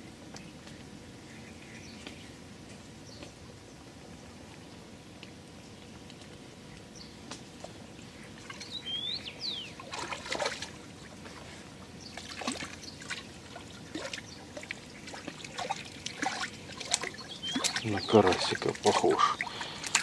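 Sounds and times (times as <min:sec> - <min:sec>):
bird chirping: 0:08.2 - 0:09.8, 0:17.1 - 0:20.0
fish splashing at water surface: 0:09.8 - 0:20.0.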